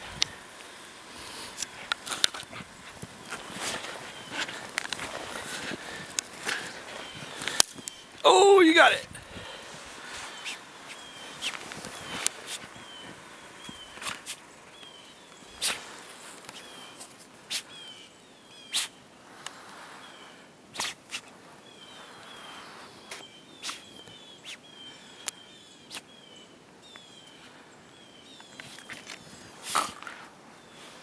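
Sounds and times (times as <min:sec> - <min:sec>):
dog digging in snow: 0:01.3 - 0:07.6, 0:15.4 - 0:17.8.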